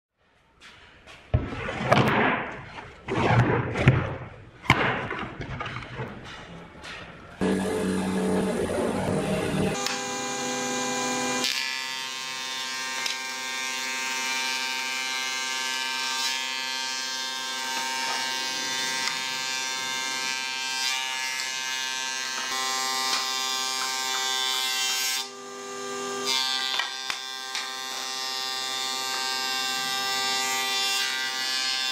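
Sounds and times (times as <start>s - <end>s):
planer motor whining: 7.4s - 11.6s
board fed through cutter rushing: 7.4s - 31.9s.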